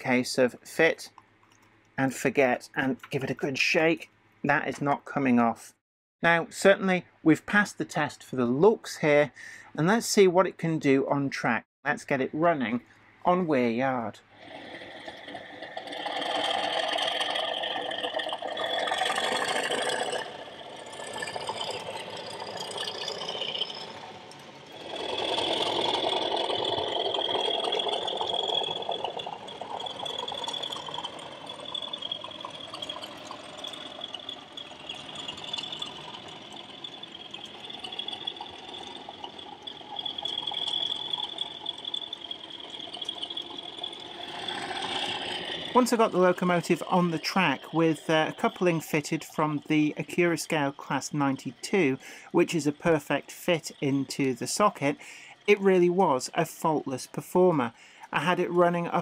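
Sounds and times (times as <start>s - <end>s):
wheels rattling on rails: 14.4s - 49.6s
model train diesel engine sound: 14.8s - 59.0s.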